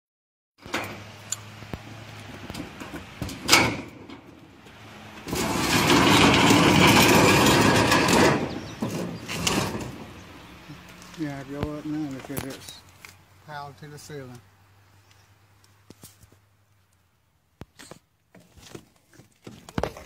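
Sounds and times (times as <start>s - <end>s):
metal roll-up door rattling: 2.4s - 4.5s, 5.2s - 10.3s.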